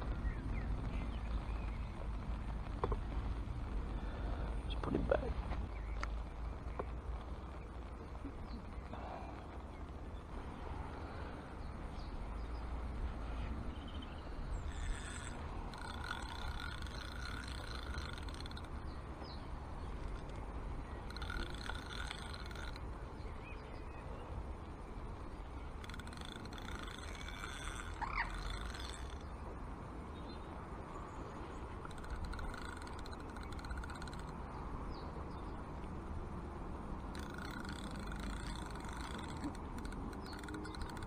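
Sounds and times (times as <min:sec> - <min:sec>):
wind rumble on microphone: 0:00.0 - 0:41.0
fishing reel whirring: 0:14.3 - 0:19.0, 0:20.0 - 0:20.4, 0:21.0 - 0:22.8, 0:25.7 - 0:29.4, 0:31.8 - 0:34.4, 0:37.1 - 0:41.0.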